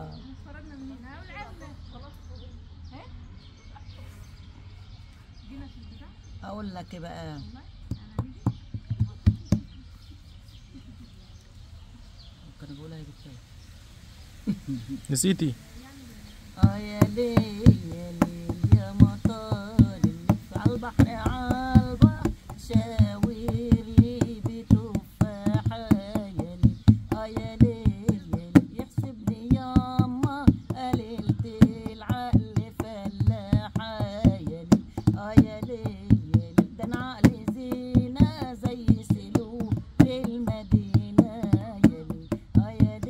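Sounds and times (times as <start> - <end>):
hand drum rhythm: 7.9 - 9.7, 16.6 - 43.0
woman singing: 16.4 - 43.0.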